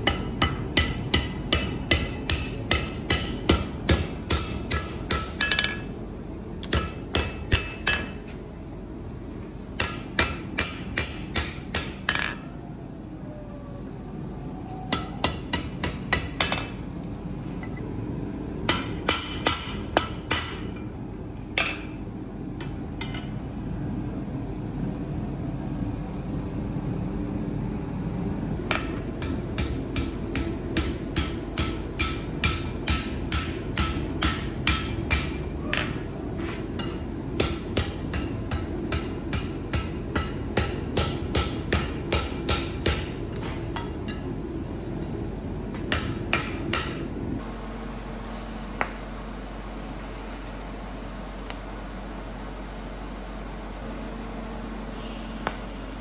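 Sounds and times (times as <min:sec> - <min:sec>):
hammer striking steel on anvil: 0:00.0 - 0:05.9, 0:06.6 - 0:08.4, 0:09.8 - 0:12.5, 0:14.9 - 0:16.8, 0:18.6 - 0:20.9, 0:21.5 - 0:22.0, 0:22.6 - 0:23.4, 0:28.7 - 0:44.3, 0:45.7 - 0:47.1
low steady rumble: 0:00.0 - 0:56.0.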